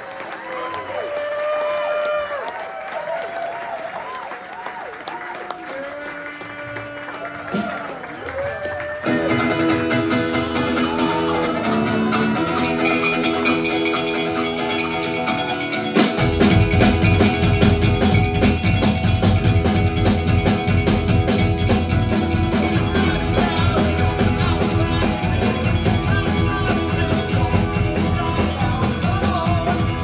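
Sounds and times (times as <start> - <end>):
drums and percussion: 6.4 - 30.0
electric guitars: 8.4 - 30.0.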